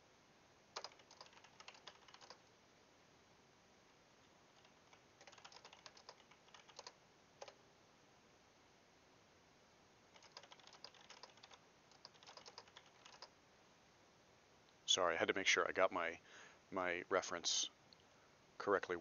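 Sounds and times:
typing on computer keyboard: 0.8s - 2.5s, 4.6s - 7.6s, 10.1s - 13.3s.

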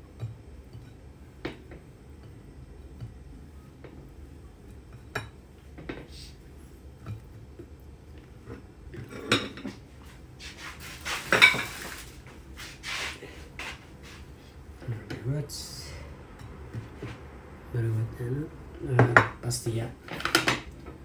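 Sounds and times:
plates and cutlery clattering: 9.0s - 9.8s, 11.2s - 12.0s.

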